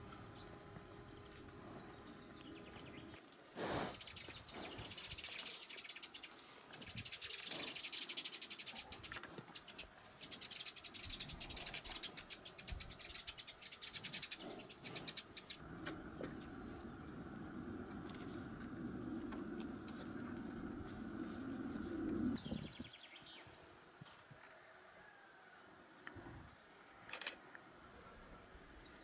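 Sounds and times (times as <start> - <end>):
insects chirping in high trills: 0.0 - 23.2.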